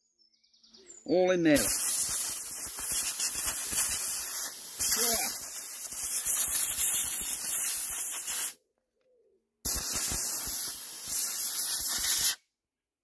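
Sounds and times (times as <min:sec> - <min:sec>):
compressed air hissing from blow gun: 0:01.6 - 0:08.6, 0:09.7 - 0:12.4.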